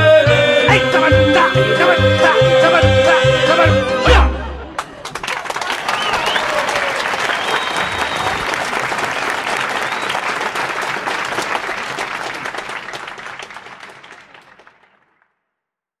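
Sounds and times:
audience applause: 4.8 - 15.2.

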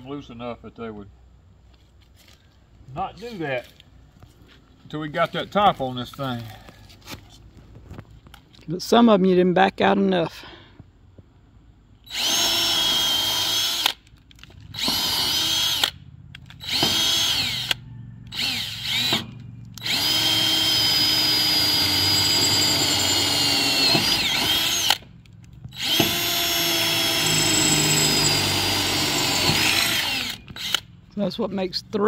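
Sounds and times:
cordless drill whirring: 12.1 - 14.0, 14.7 - 16.0, 16.6 - 25.0, 25.7 - 30.9.

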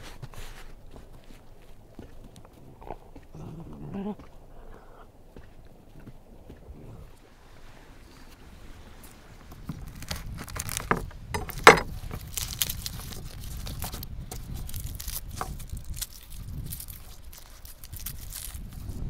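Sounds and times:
garlic skins crackling: 8.1 - 19.0
garlic bulb cracking: 9.8 - 19.0.

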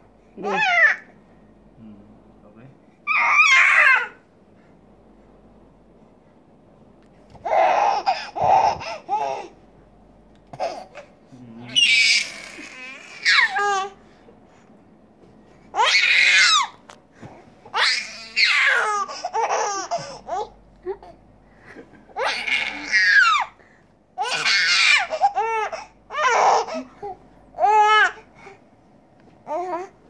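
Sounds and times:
baby laughing and squealing: 3.1 - 4.2, 7.4 - 9.5, 11.7 - 13.9, 15.8 - 16.7, 17.7 - 20.5, 22.2 - 23.5, 24.2 - 26.9.

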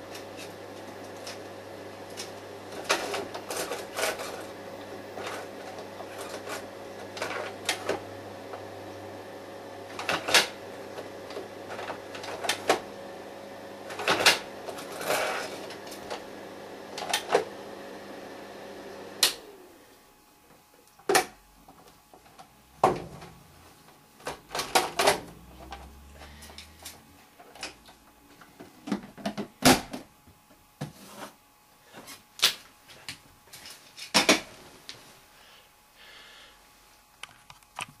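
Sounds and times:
projector hum: 0.0 - 38.0.

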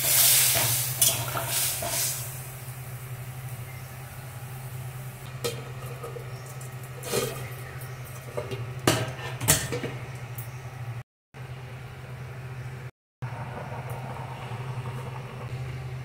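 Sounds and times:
metal lid clanking on pan: 0.6 - 2.0, 5.4 - 10.1.

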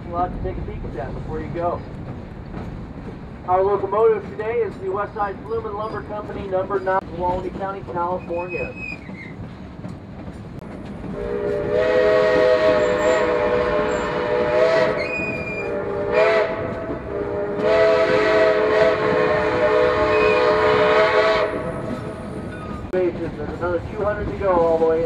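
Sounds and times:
train running rumble: 0.0 - 25.0
steam whistle blasts: 11.1 - 21.9.

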